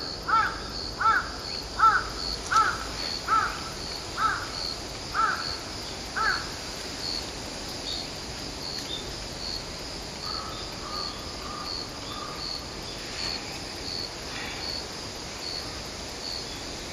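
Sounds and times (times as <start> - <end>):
cricket chirping: 0.0 - 16.9
crow cawing: 0.3 - 4.6, 5.2 - 5.6, 6.2 - 6.5, 10.3 - 12.4.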